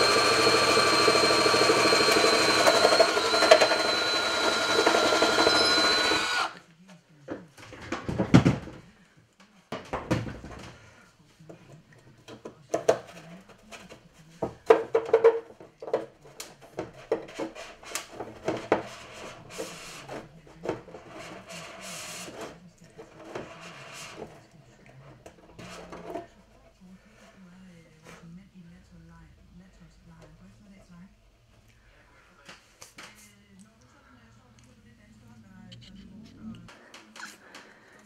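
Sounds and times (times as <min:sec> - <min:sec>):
file rasping in wood: 0:00.0 - 0:06.6.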